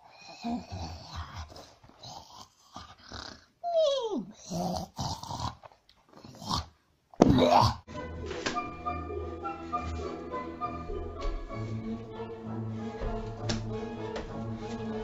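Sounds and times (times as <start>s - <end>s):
dog-like growling: 0.4s - 3.5s, 4.4s - 6.8s.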